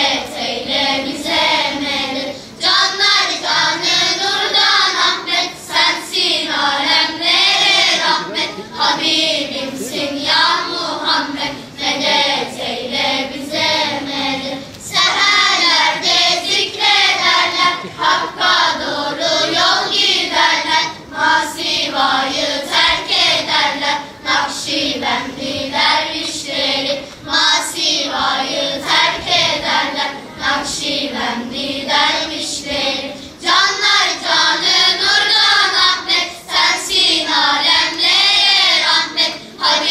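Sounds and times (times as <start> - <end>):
children's choir singing: 0.0 - 39.9.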